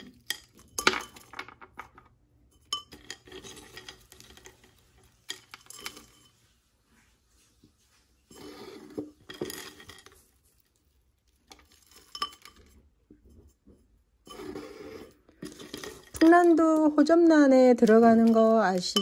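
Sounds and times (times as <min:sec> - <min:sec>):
stones and bark chips rattling: 0:15.4 - 0:19.0.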